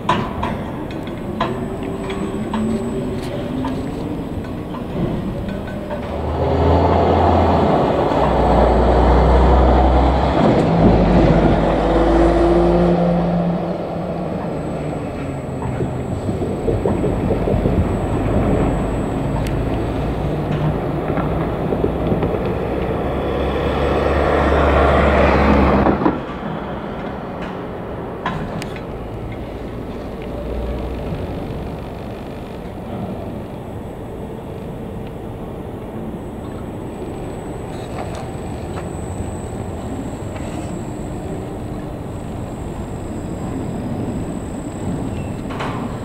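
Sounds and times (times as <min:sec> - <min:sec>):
electric crane machine hum: 0:00.0 - 0:46.0
low rumble: 0:10.4 - 0:23.4.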